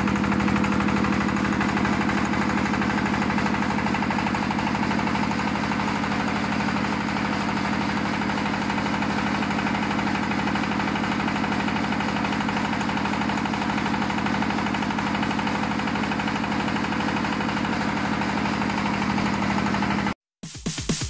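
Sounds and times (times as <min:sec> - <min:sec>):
diesel engine running: 0:00.0 - 0:20.2.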